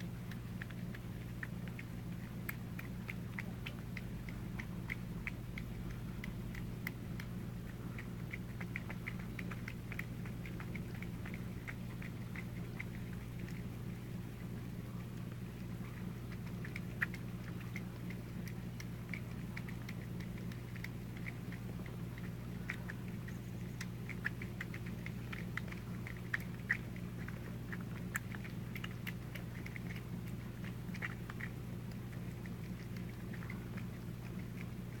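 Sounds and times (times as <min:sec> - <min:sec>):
cats chewing and lapping: 0:00.0 - 0:35.0
steady low hum: 0:00.0 - 0:35.0.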